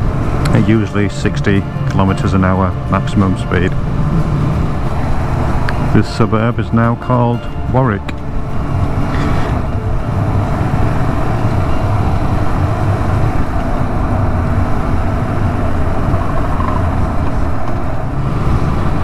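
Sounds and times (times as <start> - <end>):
wind and road noise: 0.0 - 19.0
motorcycle engine running: 8.5 - 18.2.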